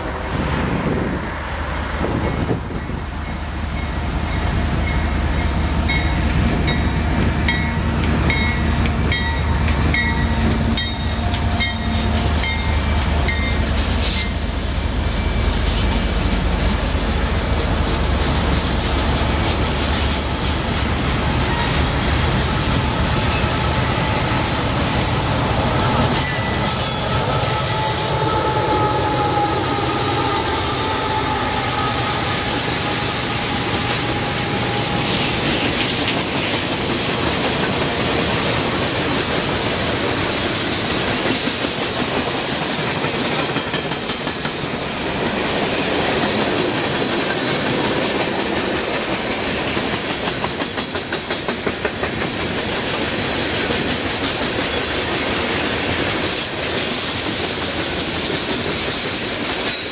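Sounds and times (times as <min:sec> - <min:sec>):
train wheels clattering over rails: 0:02.0 - 0:27.9, 0:32.4 - 0:59.9
high-pitched wheel squeal: 0:25.8 - 0:35.2.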